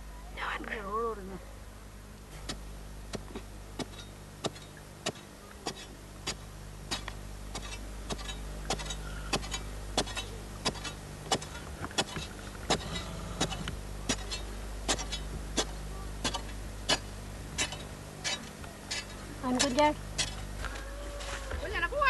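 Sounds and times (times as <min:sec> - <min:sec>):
steady low hum: 0:00.0 - 0:22.0
metal bar striking hard earth: 0:02.4 - 0:20.5.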